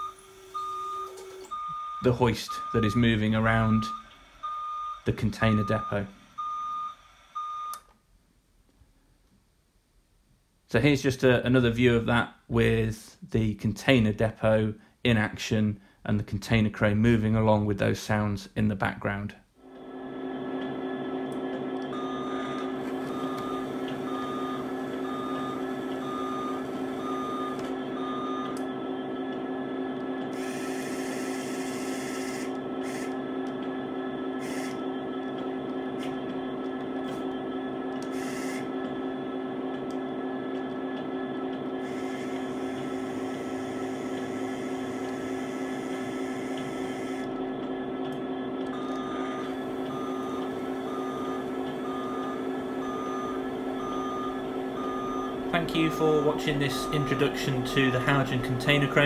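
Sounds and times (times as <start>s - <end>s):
electric drive hum: 0.0s - 7.9s, 19.1s - 59.0s
high warning beeps: 48.8s - 59.0s.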